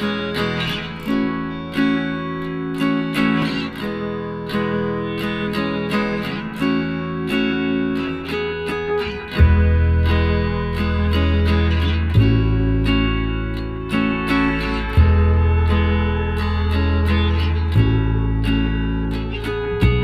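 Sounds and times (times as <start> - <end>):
acoustic guitar strumming: 0.0 - 20.0
deep bass: 9.4 - 20.0.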